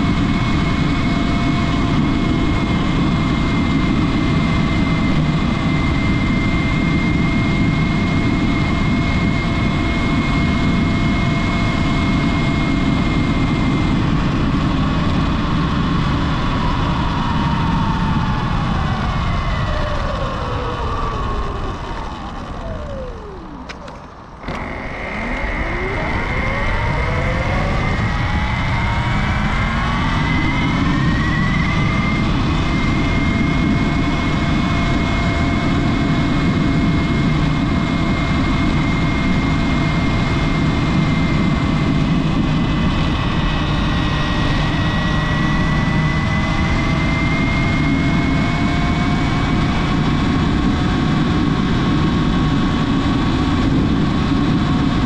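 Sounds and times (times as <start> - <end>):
electric motor whine: 0.1 - 54.7
steady rushing noise: 7.4 - 47.2.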